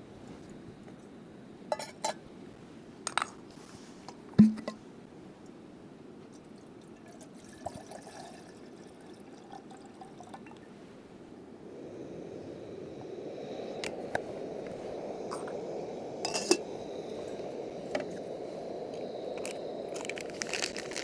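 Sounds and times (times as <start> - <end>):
cookware clinking: 1.7 - 2.2
water trickling into a pot: 6.3 - 10.7.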